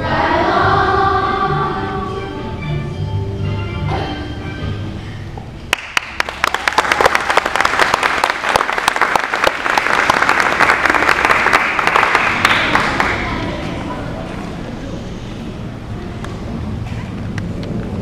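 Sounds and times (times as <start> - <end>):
children's song: 0.0 - 4.7
audience applause: 5.7 - 13.6.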